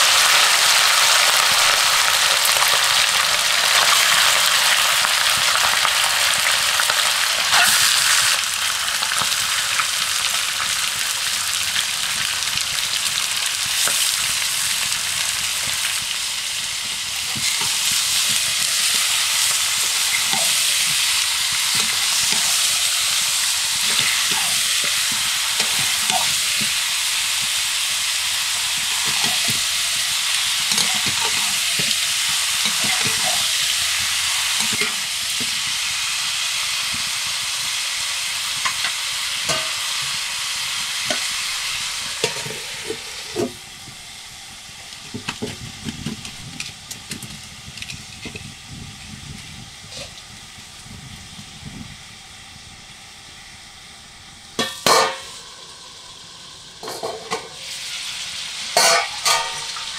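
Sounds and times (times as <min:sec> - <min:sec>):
chicken sizzling in oil: 0:00.0 - 0:59.9
ladle scraping wok: 0:16.8 - 0:37.6, 0:38.6 - 0:43.6, 0:54.6 - 0:55.6, 0:56.8 - 0:59.9
sharp metal clank: 0:58.8 - 0:59.9.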